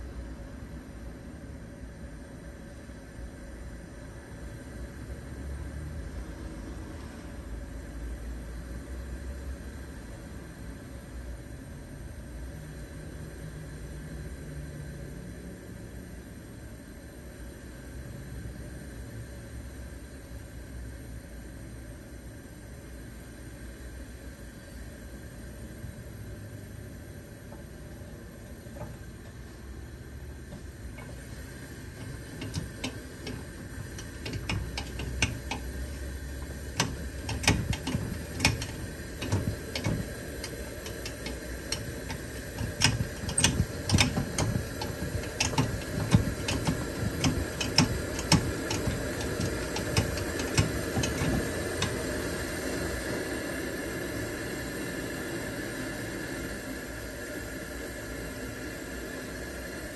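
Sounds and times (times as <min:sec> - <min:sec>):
camp stove burner sputtering: 0:25.4 - 0:59.9.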